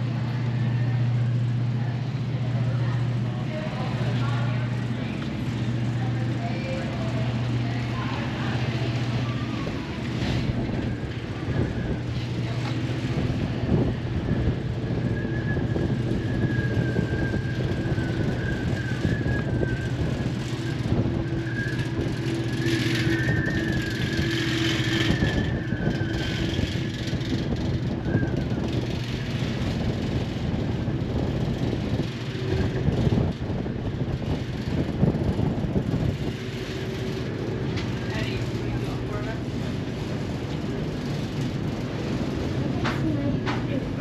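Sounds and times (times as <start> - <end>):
faint wavering high whine: 0.0 - 29.3
constant rushing noise: 0.0 - 44.0
ship engines droning: 0.0 - 44.0.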